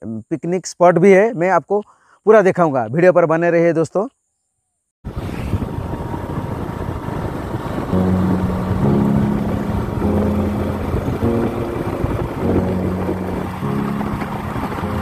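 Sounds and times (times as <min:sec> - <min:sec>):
wind and road noise: 0:05.1 - 0:15.0
background music with held notes: 0:07.5 - 0:15.0.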